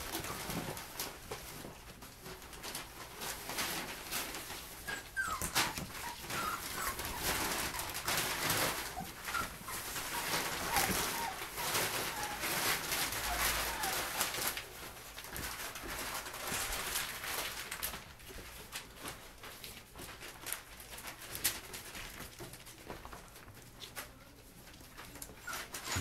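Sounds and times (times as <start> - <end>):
newspaper and tarp rustling: 0.0 - 26.0
puppies whimpering and squeaking: 4.7 - 14.6, 24.1 - 26.0.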